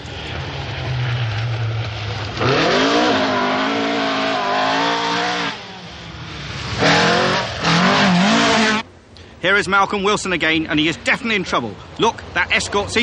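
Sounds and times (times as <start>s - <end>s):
rally car engine revving: 0.0s - 8.8s.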